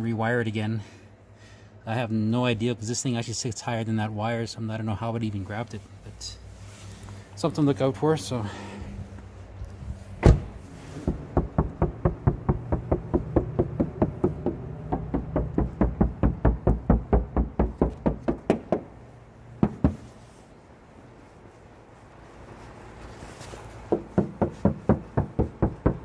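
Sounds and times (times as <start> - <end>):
knocking on steel door panel: 11.1 - 18.9, 19.6 - 20.0, 23.9 - 26.0.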